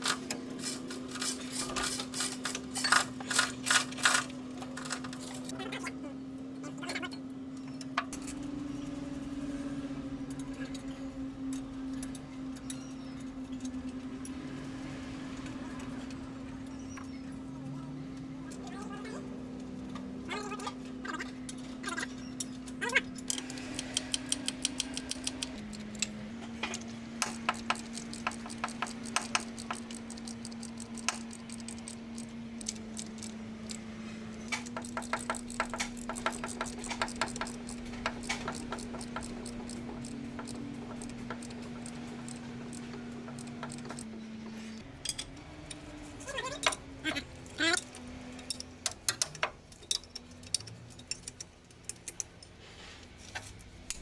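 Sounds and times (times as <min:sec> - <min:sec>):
rapid clicking of hand tools: 0:22.4 - 0:33.8, 0:34.5 - 0:45.9, 0:47.4 - 0:52.6
metallic clinks of hand tools: 0:47.7 - 0:52.5.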